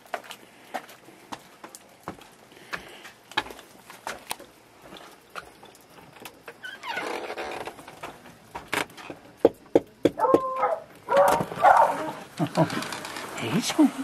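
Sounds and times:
dog whining and yipping: 10.2 - 12.2.

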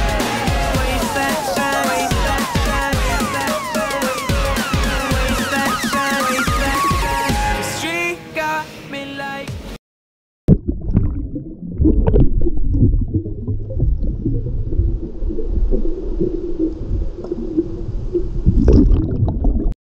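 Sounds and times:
muffled underwater water rumble: 10.5 - 19.8
water splash: 10.5 - 19.8.

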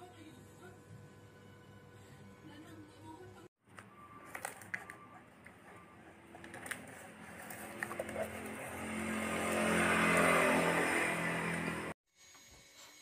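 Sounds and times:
vehicle engine passing: 4.3 - 12.0.

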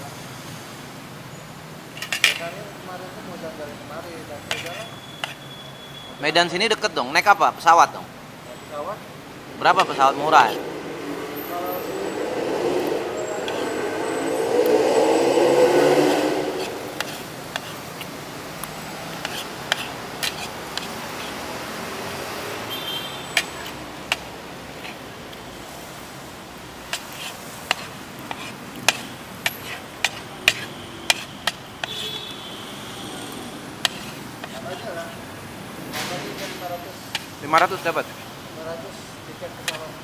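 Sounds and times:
street background noise: 0.0 - 40.0
vehicle passing loudly: 8.7 - 31.2.

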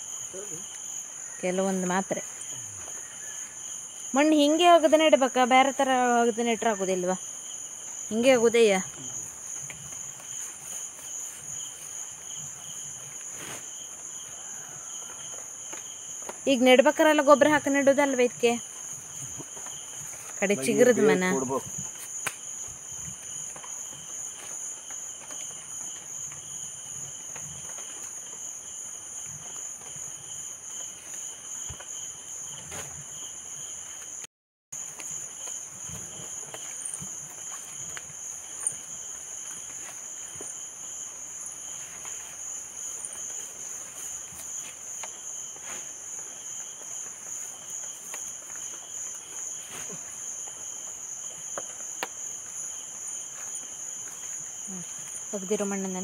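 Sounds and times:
insects trilling: 0.0 - 56.0.

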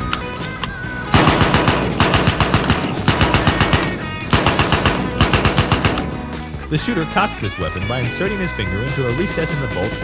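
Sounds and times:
faint background music: 0.0 - 10.0
submachine gun firing bursts: 1.1 - 6.4.

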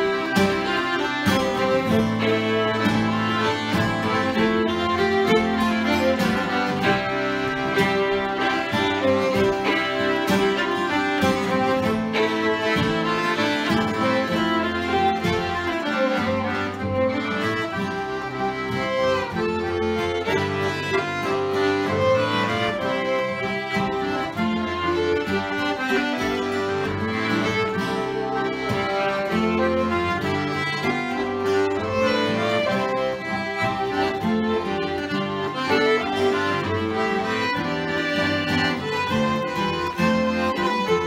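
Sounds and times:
button accordion: 0.0 - 41.0
fiddle melody: 0.0 - 41.0
strummed acoustic guitar: 0.0 - 41.0.

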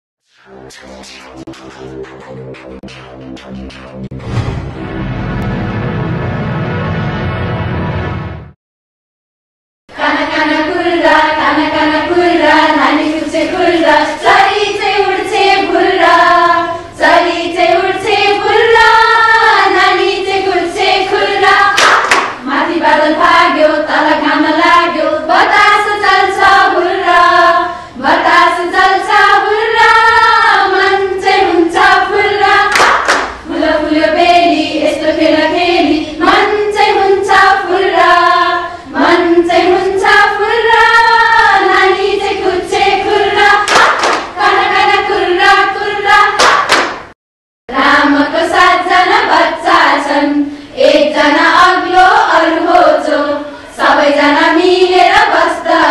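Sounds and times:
women singing together: 9.9 - 46.6, 47.7 - 55.9
sharp hand claps: 21.8 - 22.4, 32.7 - 33.4, 43.6 - 44.4, 46.4 - 47.2.

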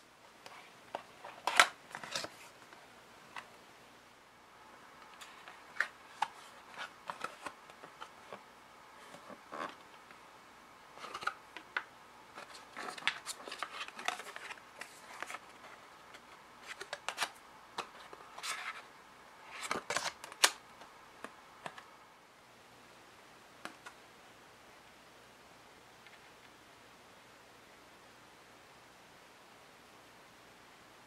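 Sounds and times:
cardboard and cards rustling: 0.5 - 3.5, 5.0 - 10.2, 10.9 - 21.9.

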